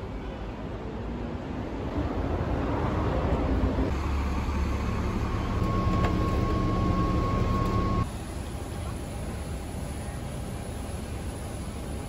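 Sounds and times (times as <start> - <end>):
vehicle engine rumbling: 2.9 - 12.0.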